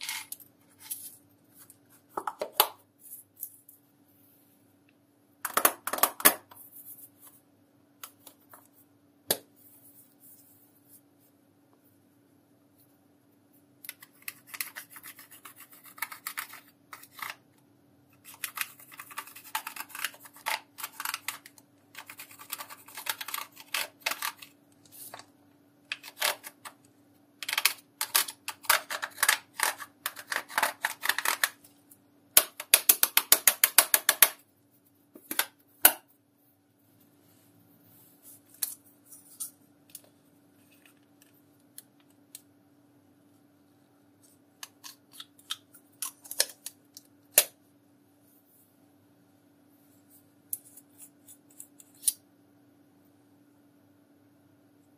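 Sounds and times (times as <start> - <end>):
tool scratching powder makeup: 14.0 - 17.4, 18.2 - 24.4.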